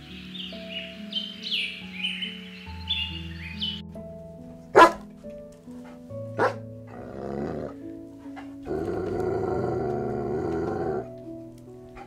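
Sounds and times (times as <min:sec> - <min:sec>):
background music: 0:00.0 - 0:12.0
dog growling: 0:06.4 - 0:11.2.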